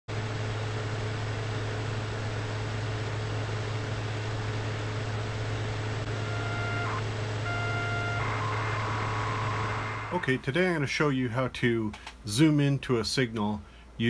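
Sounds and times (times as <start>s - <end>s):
low electrical hum with hiss: 0.8s - 14.0s
high steady tone: 6.0s - 11.2s.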